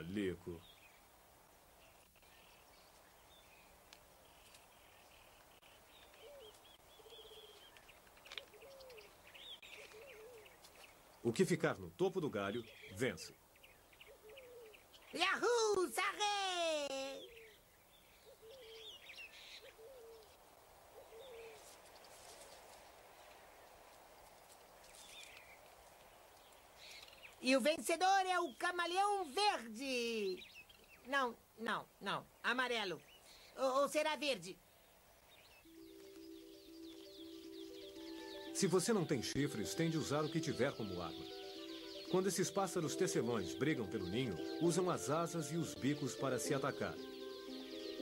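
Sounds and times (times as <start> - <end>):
low rising and falling bird call: 3.3 - 10.9, 12.5 - 15.2, 17.2 - 23.7, 35.4 - 48.0
faint hiss: 20.2 - 27.7
soft high bird chirps: 34.9 - 48.0.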